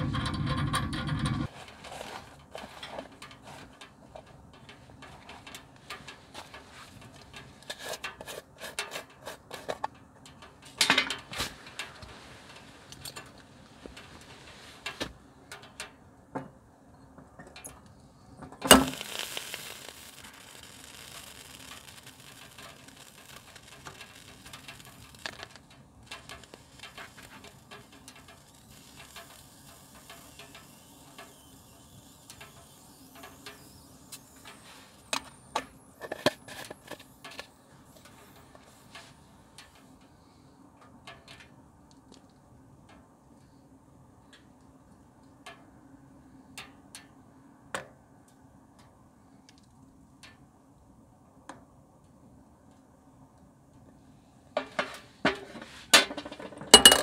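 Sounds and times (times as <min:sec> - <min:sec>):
clatter: 0:00.0 - 0:12.0
clicks and knocks of objects handled: 0:00.0 - 0:19.0, 0:22.4 - 0:29.4, 0:33.2 - 0:40.1
hiss: 0:18.0 - 0:40.5.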